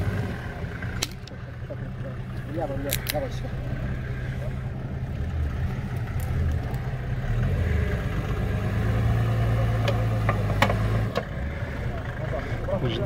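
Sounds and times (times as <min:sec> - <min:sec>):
engine pulling under load: 0:00.0 - 0:13.0.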